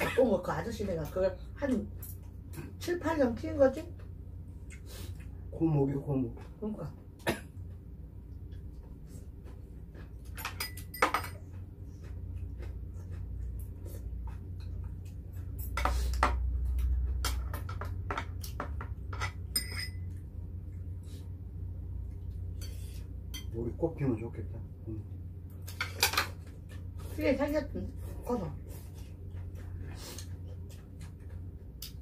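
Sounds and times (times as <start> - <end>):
spoons and chopsticks clinking on dishes: 10.3 - 11.4, 17.2 - 20.2, 22.6 - 23.6.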